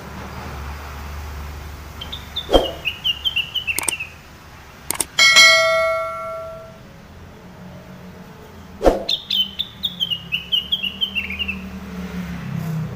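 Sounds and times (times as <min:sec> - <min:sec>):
bird chirping fast: 0:02.0 - 0:04.2, 0:08.8 - 0:11.5
bell-like ding: 0:05.1 - 0:06.8.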